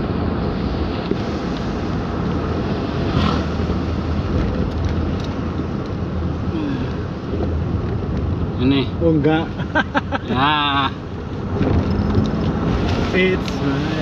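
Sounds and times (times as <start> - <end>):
tyres hissing on wet road: 0.0 - 4.4, 5.3 - 7.8, 12.4 - 14.0
car engine and tyre rumble: 0.0 - 14.0.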